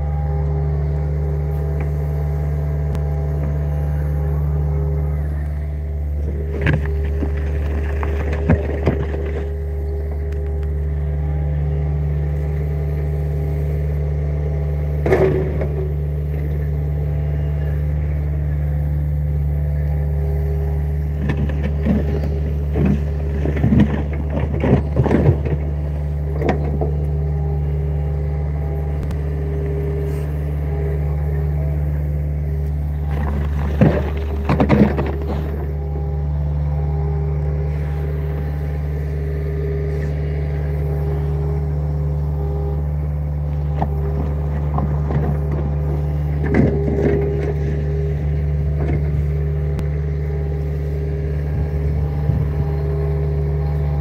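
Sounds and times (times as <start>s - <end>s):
excavator diesel engine running: 0.0s - 54.0s
higher hum: 0.0s - 54.0s
bucket clattering and scraping soil: 6.2s - 9.9s, 21.2s - 26.8s, 33.0s - 35.9s.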